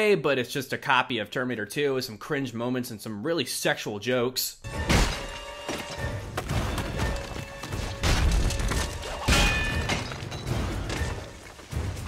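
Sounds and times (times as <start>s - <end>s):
dramatic score music: 4.7s - 12.0s.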